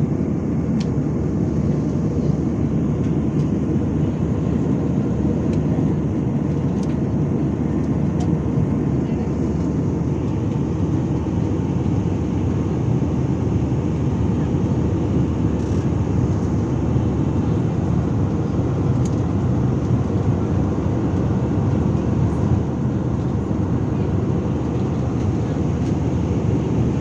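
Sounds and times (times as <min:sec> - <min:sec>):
jet engines rumbling in cabin: 0:00.0 - 0:27.0.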